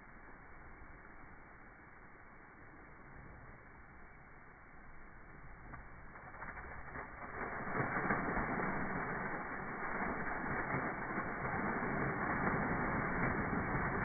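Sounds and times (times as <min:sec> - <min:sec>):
geyser water gushing and splashing: 0:04.8 - 0:14.0.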